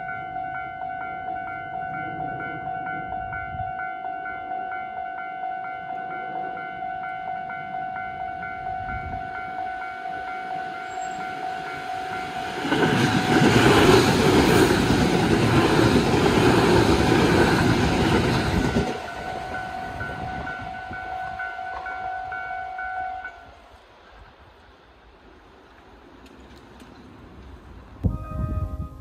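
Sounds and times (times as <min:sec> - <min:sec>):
level crossing alarm bell ringing: 0:00.0 - 0:12.5
train wheels rumbling: 0:06.0 - 0:29.0.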